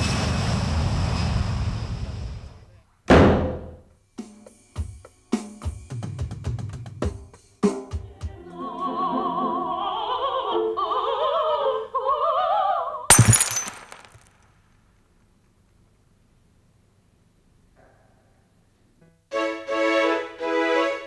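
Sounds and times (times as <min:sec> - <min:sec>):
loud crash: 0:13.1 - 0:14.2.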